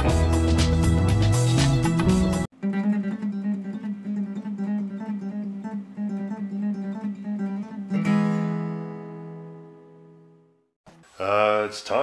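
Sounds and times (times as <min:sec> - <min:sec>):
acoustic guitar picking: 0:00.9 - 0:11.2.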